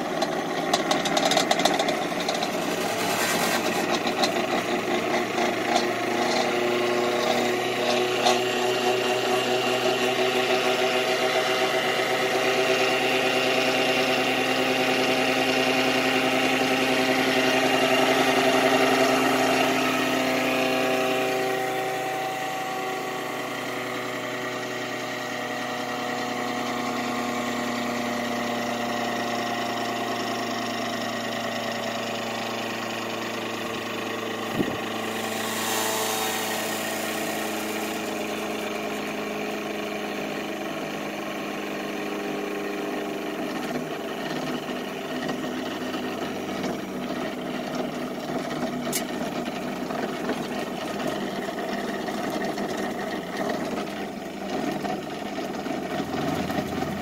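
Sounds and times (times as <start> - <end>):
motor humming and whining: 34.2 - 40.9.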